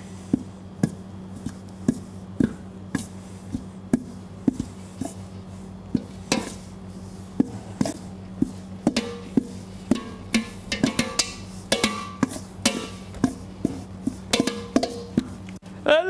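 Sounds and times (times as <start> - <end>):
beater knocking in a metal bowl: 5.9 - 6.7, 7.3 - 15.4.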